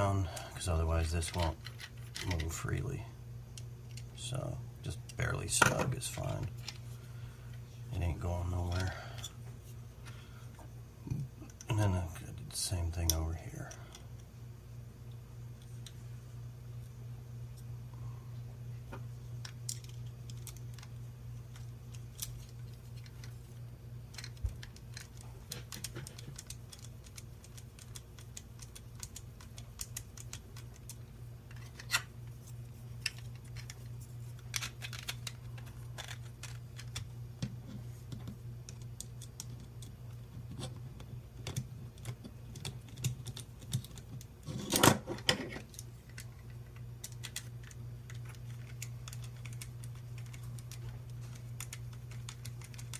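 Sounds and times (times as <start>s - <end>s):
steady low hum: 0.0s - 52.9s
plastic parts clattering: 33.0s - 37.0s.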